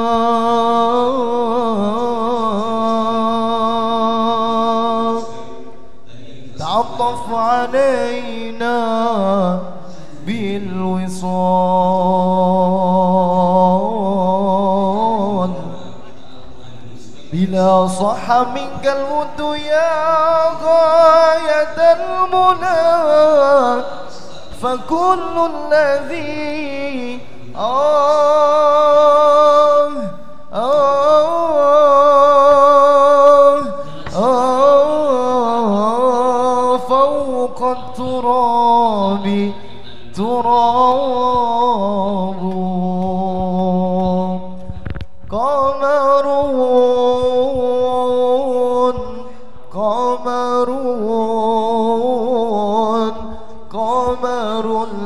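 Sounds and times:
man chanting: 0.0s - 55.0s
person singing unaccompanied: 17.3s - 55.0s
singer breathing: 49.2s - 49.7s, 53.2s - 53.6s.

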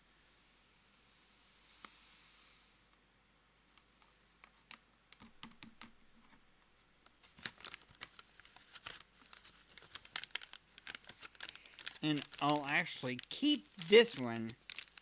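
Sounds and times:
packaging bags crinkling: 7.2s - 15.0s.

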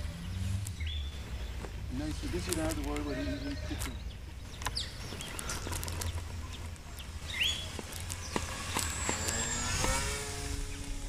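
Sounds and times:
bird chirp: 0.0s - 11.0s
model plane motor whining: 5.3s - 11.0s.

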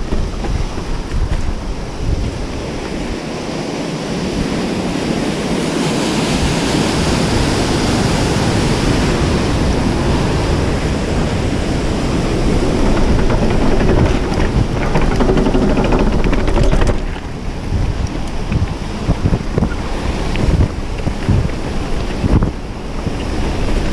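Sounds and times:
rushing creek: 0.0s - 23.9s
wind buffeting microphone: 0.0s - 23.9s
bike rattling on metal grating: 11.2s - 17.9s.

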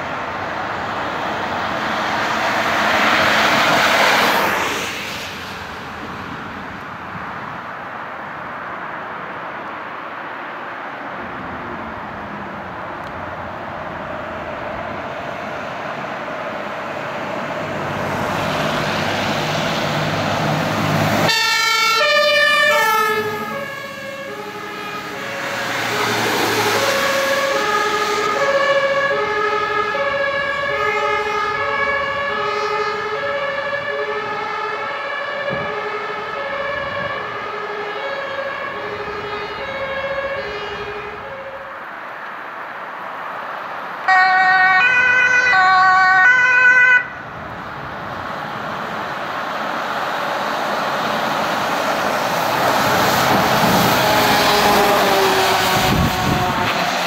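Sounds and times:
truck engine and tyre noise: 0.0s - 57.0s
two-tone siren: 21.2s - 41.8s, 44.1s - 47.2s, 53.6s - 56.8s.

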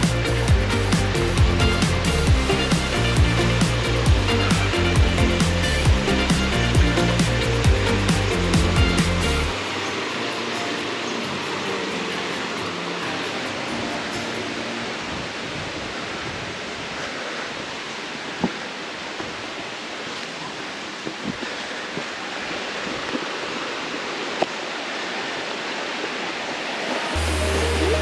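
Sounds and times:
music with low bass: 0.0s - 14.4s, 27.2s - 28.0s
stream rushing over rocks: 0.0s - 28.0s
footsteps on stony trail: 21.0s - 23.4s.

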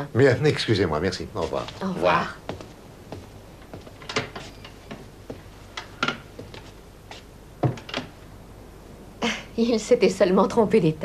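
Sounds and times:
light clicks and knocks: 2.5s - 6.7s.

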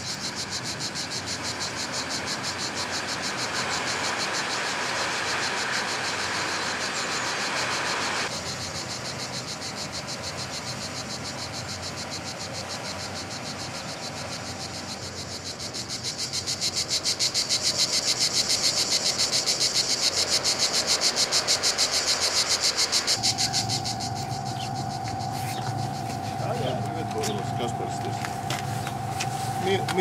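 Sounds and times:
high-pitched pulsing trill: 21.8s - 30.0s.

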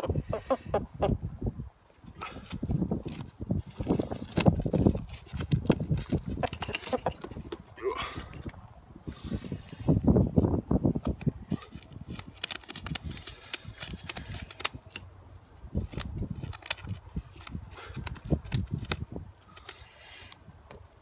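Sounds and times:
scissors snipping feathers: 12.2s - 15.0s.

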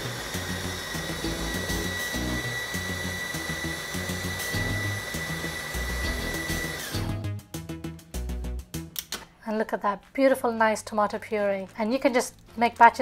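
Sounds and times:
food processor motor whining: 0.0s - 7.2s
background music with steady beat: 0.0s - 13.0s.

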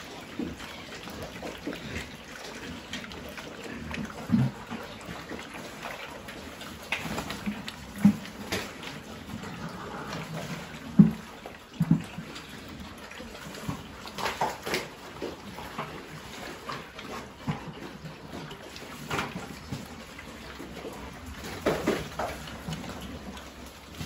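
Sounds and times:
pigs slurping and chomping feed: 0.0s - 24.0s
pig grunts: 0.5s - 5.3s, 9.2s - 11.2s.

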